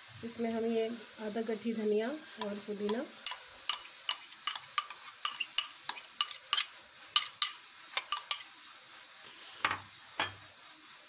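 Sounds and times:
metal spoon scraping glass bowl: 3.3 - 8.5.

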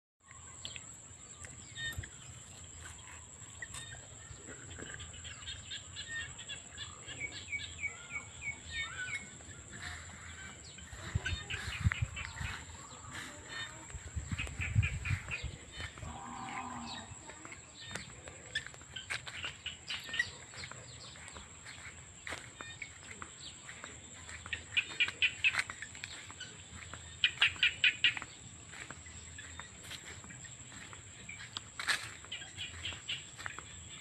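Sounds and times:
birds chirping: 0.3 - 34.0
cow mooing: 16.0 - 17.1.

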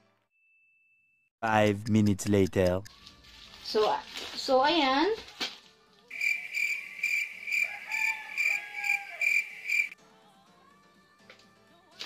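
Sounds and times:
cricket chirping: 6.1 - 10.0.

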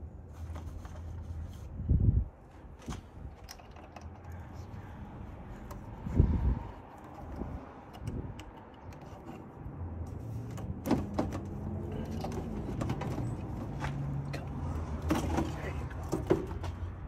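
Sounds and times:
clicks and knocks of rubber and plastic: 2.7 - 4.7, 6.7 - 9.5, 10.1 - 14.1, 14.9 - 17.0.

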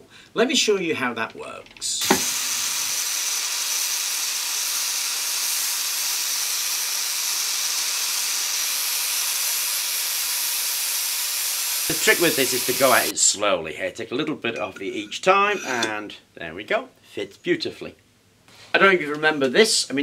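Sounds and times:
angle grinder grinding steel: 11.8 - 13.1, 15.3 - 15.9.

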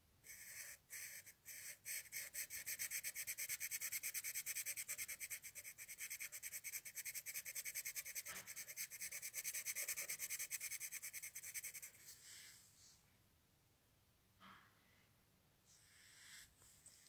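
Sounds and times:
pen scratching on paper: 0.3 - 12.2.

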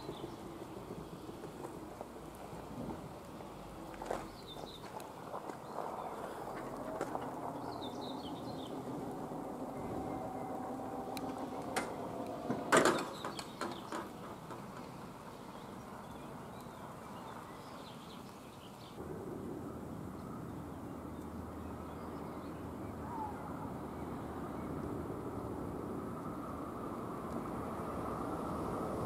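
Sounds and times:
barrier drive whine: 5.8 - 14.6
rattling knocks: 11.3 - 15.0.

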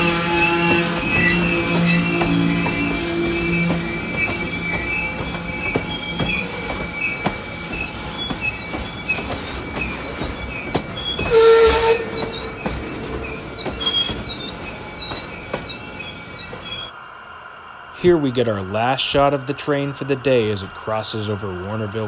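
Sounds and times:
model train wheels squealing: 0.0 - 16.9
wheels clicking over track: 0.0 - 16.9.

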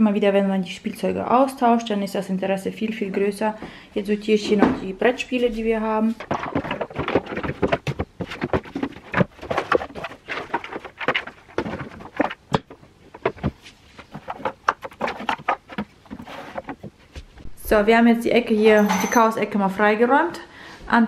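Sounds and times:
cardboard boxes knocking and scraping: 5.6 - 17.5.

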